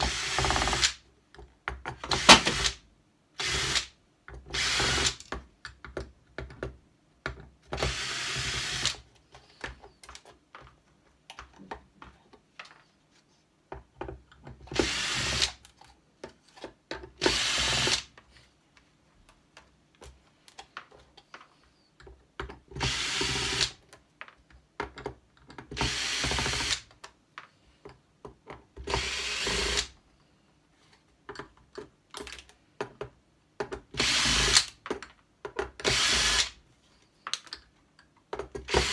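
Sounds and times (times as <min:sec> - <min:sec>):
cordless drill driving screws: 0:00.0 - 0:01.0, 0:02.0 - 0:02.8, 0:04.5 - 0:05.2, 0:07.8 - 0:09.0, 0:14.8 - 0:15.6, 0:17.2 - 0:18.1, 0:22.8 - 0:23.8, 0:25.8 - 0:26.8, 0:28.9 - 0:29.9, 0:34.0 - 0:34.8, 0:35.8 - 0:36.6, 0:38.6 - 0:38.9.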